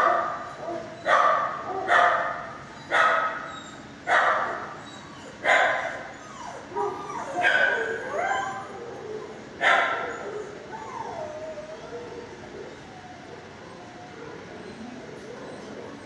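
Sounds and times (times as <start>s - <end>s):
dog barking: 0.0s - 3.4s, 4.1s - 4.6s, 5.5s - 6.0s, 6.8s - 7.8s, 9.6s - 10.1s
dog whining yelps: 2.8s - 16.0s.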